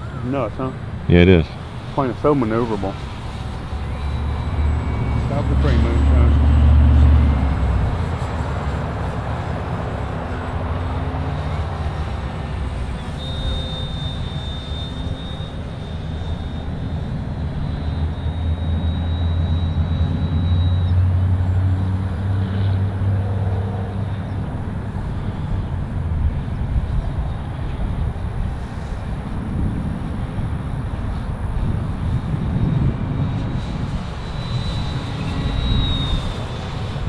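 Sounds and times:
model plane electric motor whine: 1.6s - 21.8s, 24.0s - 37.0s
wind buffeting microphone: 21.0s - 37.0s.

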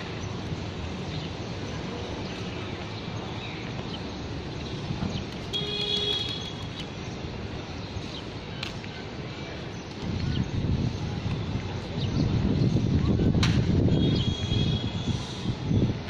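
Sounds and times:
city traffic hum: 0.0s - 16.0s
vehicle horn toot: 5.5s - 6.5s, 13.9s - 15.1s.

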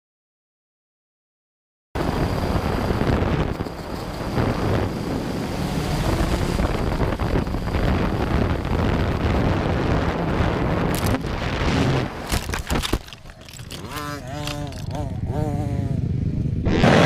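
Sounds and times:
wind on the microphone: 2.0s - 15.4s
dirt bike engines: 2.0s - 17.0s.

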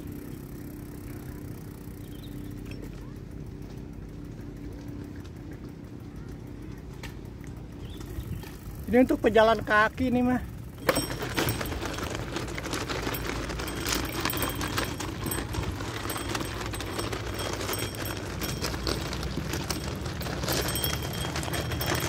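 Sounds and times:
bicycle tyres crunching on gravel: 7.8s - 22.0s.

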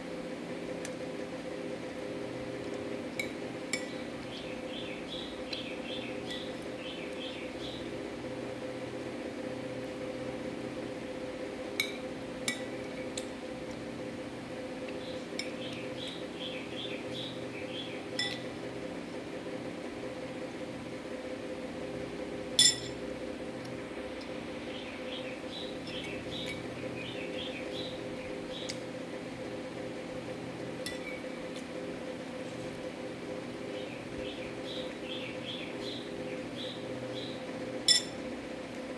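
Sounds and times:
steady low hum: 0.0s - 38.9s
birds chirping faintly: 3.9s - 7.9s, 14.8s - 18.4s, 24.0s - 28.8s, 33.7s - 37.5s
spoon clinking against ceramic bowl: 18.2s - 18.4s, 22.6s - 22.9s, 37.9s - 38.2s.

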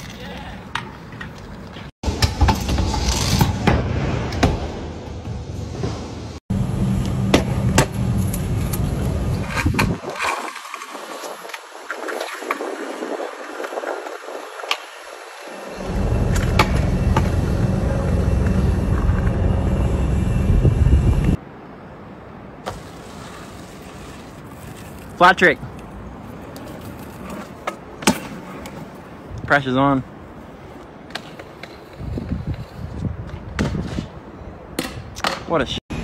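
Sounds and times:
scooter wheels on pavement: 7.1s - 19.7s, 22.6s - 34.2s
heavy low rumble: 15.7s - 21.4s.

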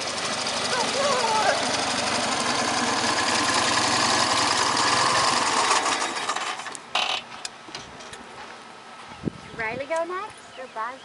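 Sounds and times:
motorcycle engine running: 0.0s - 6.6s.

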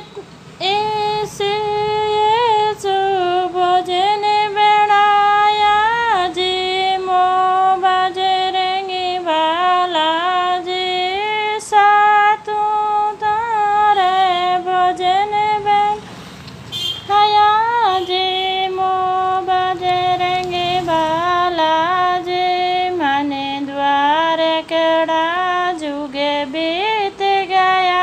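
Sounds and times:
woman singing unaccompanied: 0.0s - 16.2s, 17.0s - 28.0s.

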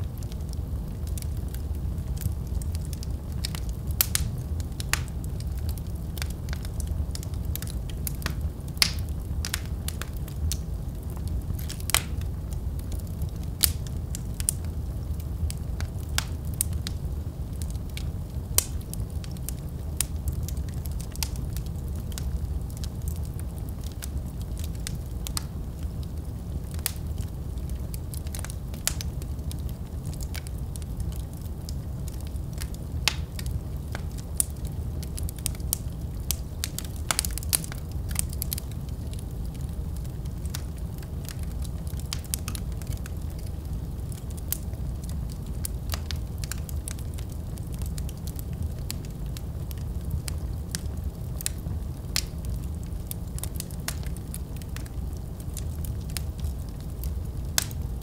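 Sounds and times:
low rumble of flames: 0.0s - 58.0s
wood fire crackling and popping: 0.0s - 58.0s.

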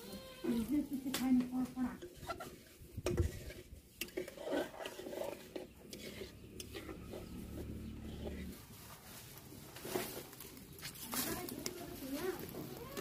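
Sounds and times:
metal spatula scraping a pan: 1.9s - 8.6s.

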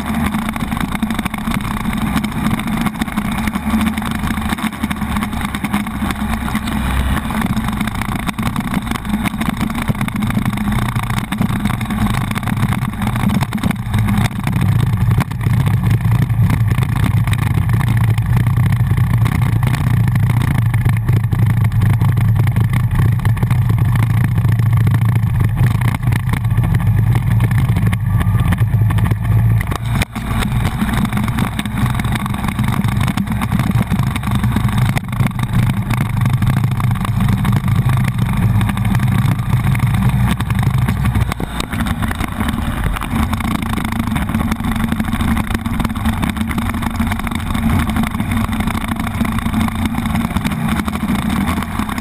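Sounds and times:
motorcycle engine running: 0.0s - 52.0s.

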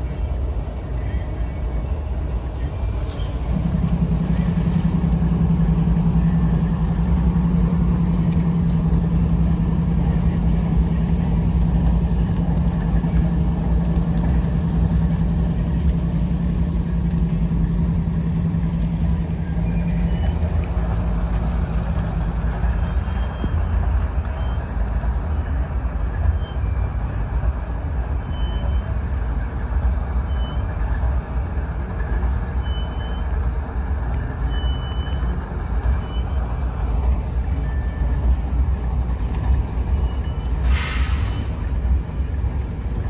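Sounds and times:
diesel locomotives rumbling: 0.0s - 43.0s
short hiss: 40.6s - 41.5s.

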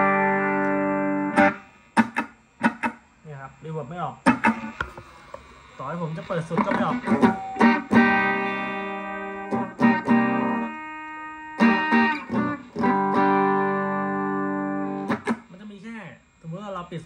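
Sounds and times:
electric guitar chords strummed: 0.0s - 3.0s, 4.3s - 5.0s, 6.3s - 15.5s.

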